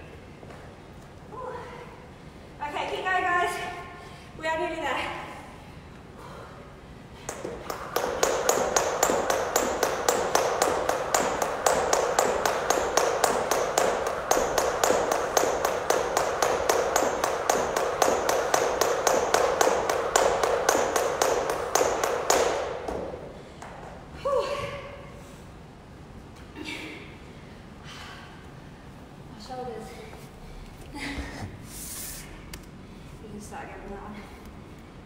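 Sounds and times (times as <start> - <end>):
jump rope tapping on floor: 7.3 - 24.0.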